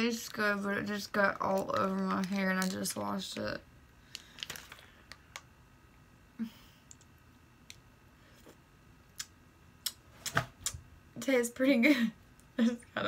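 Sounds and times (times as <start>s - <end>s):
wet lip smacks and clicks: 9.1s - 10.8s.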